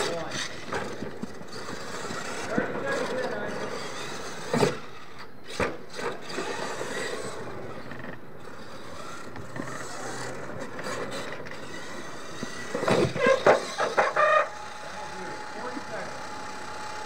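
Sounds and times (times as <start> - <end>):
toy truck motor: 0.0 - 17.0
tyres churning dirt: 0.0 - 17.0.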